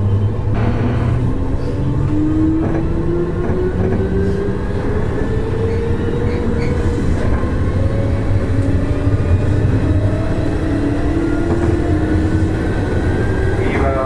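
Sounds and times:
wheels rumbling on rail: 0.0s - 14.0s.

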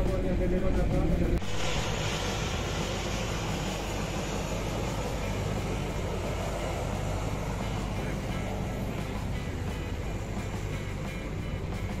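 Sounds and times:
engine rumble: 0.0s - 12.0s.

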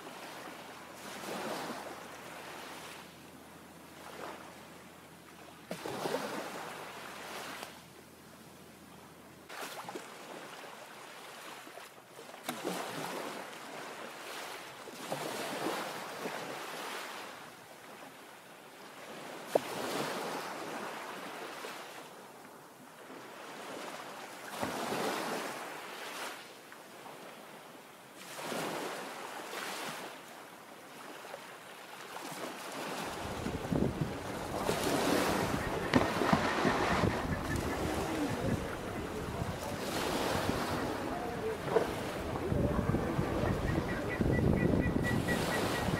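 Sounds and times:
small waves on pebble beach: 0.0s - 3.1s, 5.7s - 7.8s, 18.9s - 22.1s, 23.0s - 27.5s, 28.2s - 42.5s
wind on microphone: 33.1s - 45.9s.

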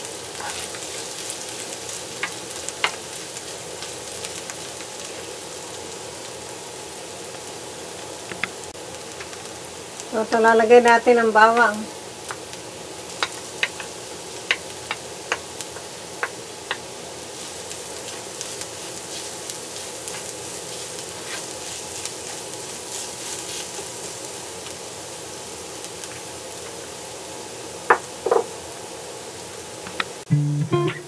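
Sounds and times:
garlic sizzling in hot oil: 0.0s - 30.9s
spatula tapping against pan: 13.2s - 13.9s.

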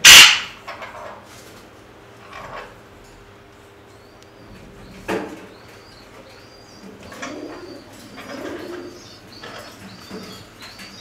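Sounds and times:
birds chirping: 3.0s - 11.0s
pigeons cooing: 4.4s - 11.0s.

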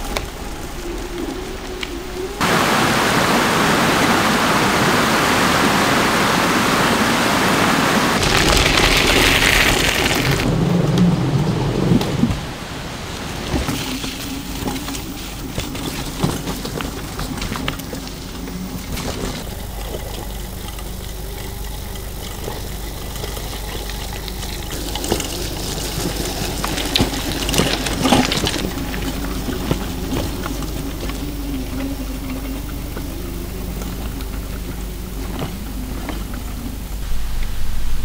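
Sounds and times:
steady low rumble: 0.0s - 3.2s, 28.6s - 38.0s
heavy rain: 0.0s - 38.0s
running splashing water: 12.4s - 38.0s.

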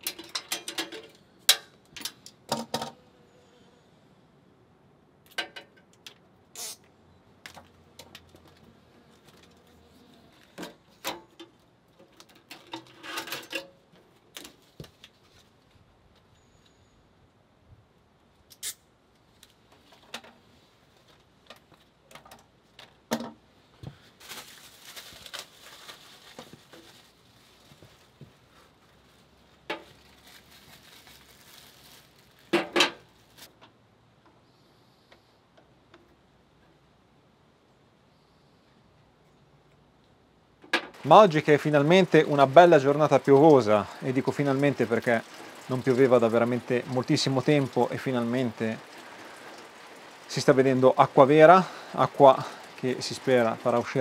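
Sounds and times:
soft rustling hiss: 18.3s - 36.3s.

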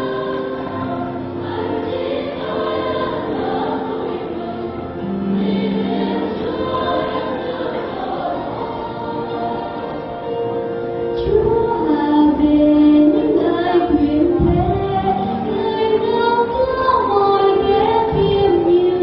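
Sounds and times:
choir singing a hymn: 0.0s - 19.0s.

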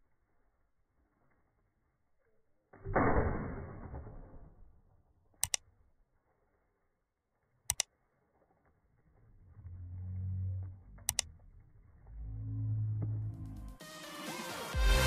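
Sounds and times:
shotgun shot: 2.9s - 4.2s
mouse double clicks: 11.1s - 11.3s.

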